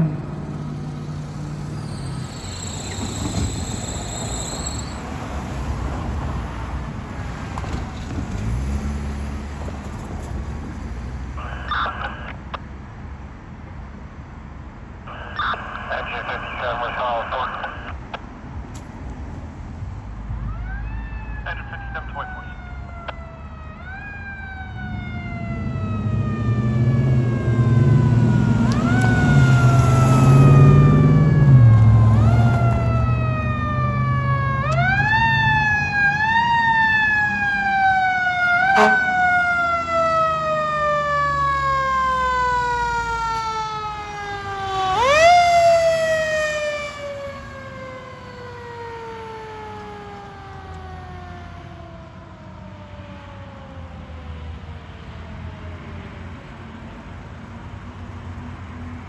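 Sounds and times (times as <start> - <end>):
fire truck engine passing: 0.0 - 13.1, 18.9 - 59.0
mechanical siren wailing: 1.6 - 5.2, 20.4 - 53.9.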